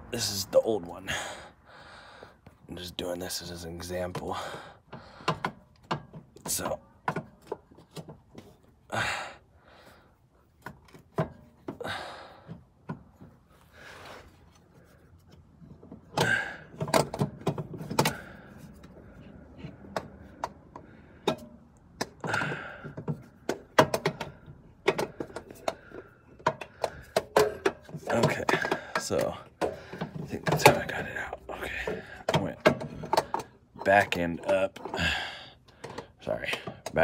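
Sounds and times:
metallic clicks and knocks: 0:19.6 - 0:35.0.

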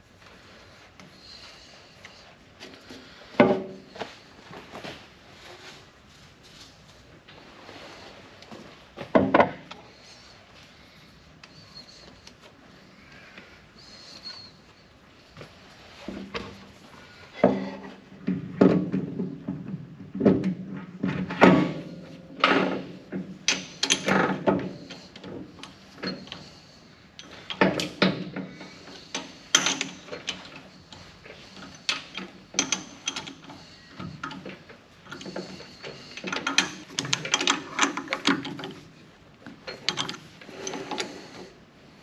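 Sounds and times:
lathe chuck jaws clicking and scraping: 0:29.1 - 0:38.8, 0:39.7 - 0:41.5.

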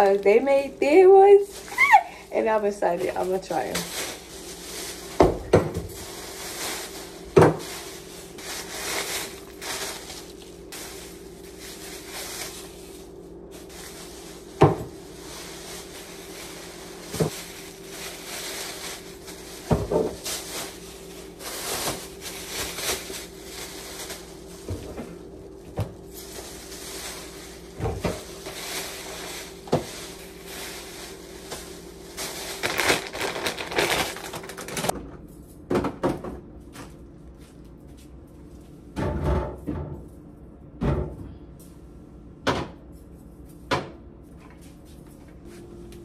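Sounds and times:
rustling packaging: 0:00.0 - 0:25.0, 0:26.1 - 0:35.0
steady low hum: 0:00.0 - 0:35.7.

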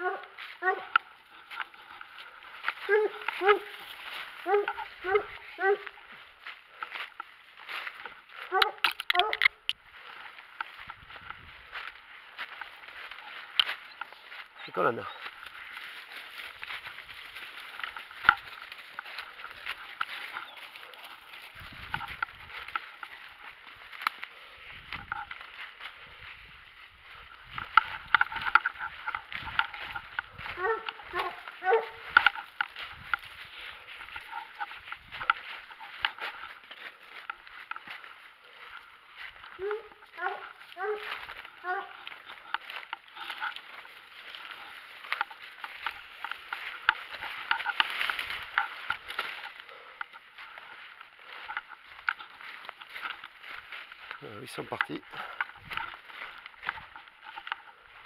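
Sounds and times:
brush rustling: 0:00.0 - 0:58.0
footsteps crunching dry leaves: 0:00.0 - 0:58.0
twigs cracking: 0:00.0 - 0:58.0
twig snaps: 0:08.6 - 0:09.8.

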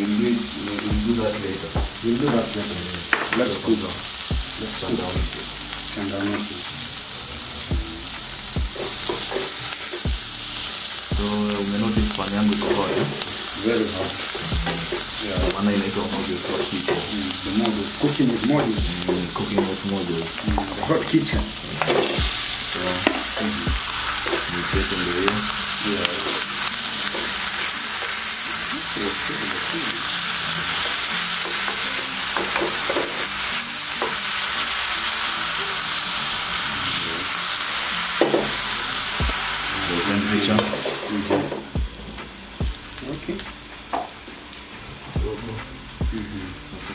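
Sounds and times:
food sizzling in a frying pan: 0:00.0 - 0:46.9
spoon knocking and scraping a pan: 0:01.8 - 0:03.5, 0:08.7 - 0:10.0, 0:12.6 - 0:13.4, 0:16.4 - 0:17.1, 0:30.8 - 0:33.3, 0:38.2 - 0:38.6.

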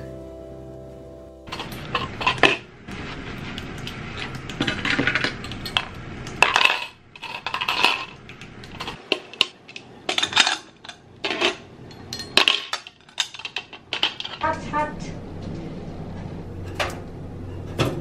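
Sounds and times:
dishes clinking in a metal sink: 0:01.5 - 0:02.7, 0:04.5 - 0:14.5.

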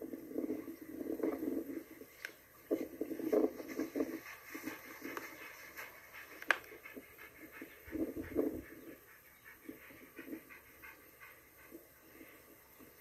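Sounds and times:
dog panting rapidly: 0:03.5 - 0:13.0.

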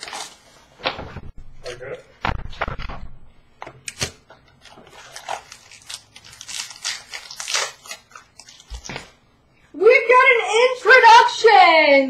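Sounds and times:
packaging rustling and crinkling: 0:00.0 - 0:00.8, 0:04.5 - 0:09.2.

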